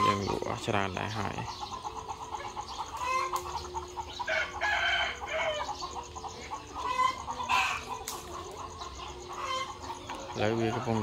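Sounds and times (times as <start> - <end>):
hens clucking: 0.0 - 11.0
rooster crowing: 3.0 - 5.9.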